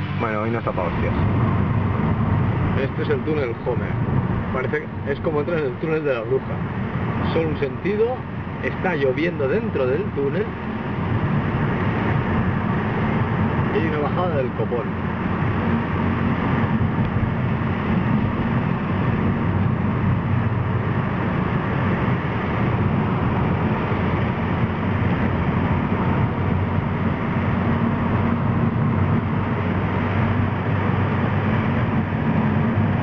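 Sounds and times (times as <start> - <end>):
car driving through tunnel: 0.0 - 33.0.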